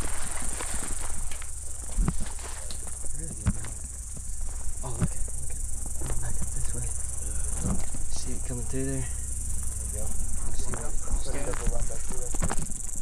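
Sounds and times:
footsteps on dry ground: 0.0 - 8.2
insects buzzing: 0.0 - 13.0.

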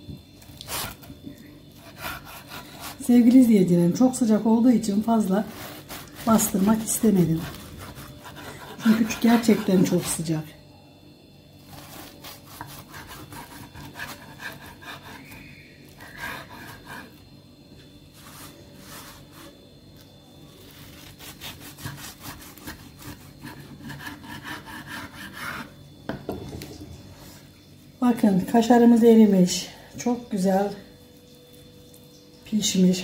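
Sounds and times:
knife sawing through wrap: 1.8 - 3.1, 5.3 - 10.3, 11.7 - 15.2, 20.8 - 25.7.

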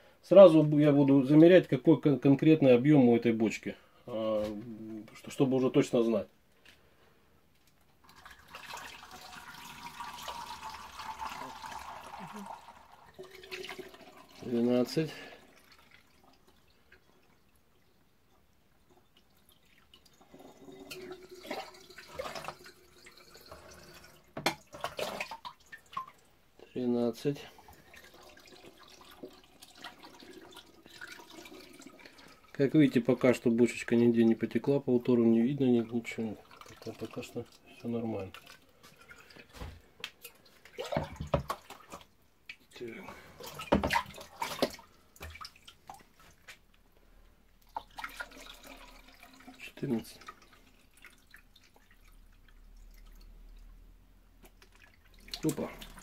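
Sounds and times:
water trickling through funnel: 7.8 - 39.5, 47.5 - 56.0
jug knocking and clattering: 40.8 - 42.0, 43.4 - 45.4.

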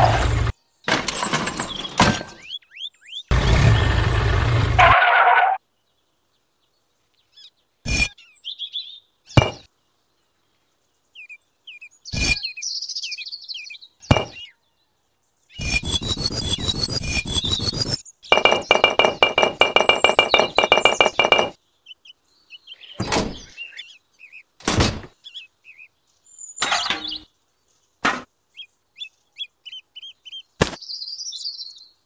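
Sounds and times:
clay bricks clinking: 0.9 - 2.4, 16.0 - 21.5
faint bird chirps: 5.6 - 24.6, 28.5 - 32.0.

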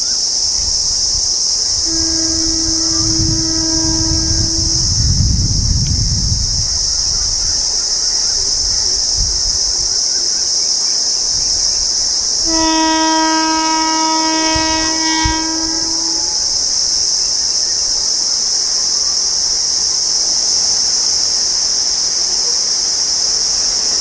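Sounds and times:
insects hissing: 0.0 - 24.0
locomotive horn blast: 1.6 - 6.2, 12.4 - 17.5.

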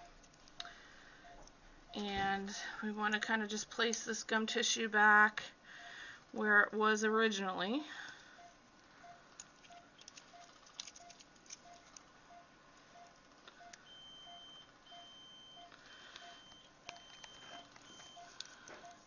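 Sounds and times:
higher-pitched broken beeps: 0.0 - 0.2, 8.4 - 19.0
monitor beeping quietly: 0.0 - 4.4, 7.9 - 19.0
surgical instruments clicking: 0.1 - 1.6, 9.3 - 12.1, 15.6 - 19.0.

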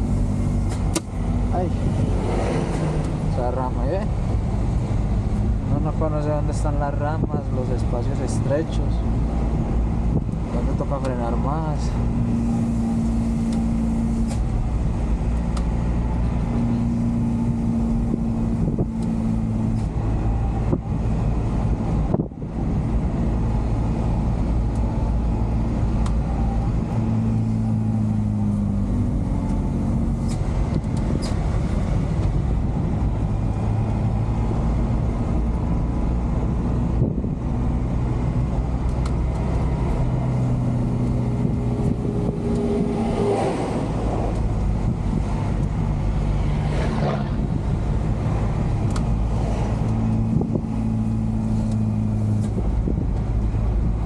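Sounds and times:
tyres on road: 0.0 - 54.0.

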